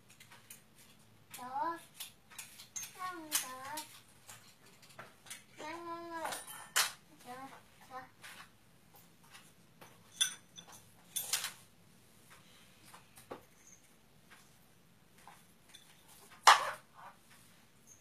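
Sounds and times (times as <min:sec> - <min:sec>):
spoons and dishes clinking on tray: 0:06.2 - 0:07.0, 0:09.9 - 0:11.6.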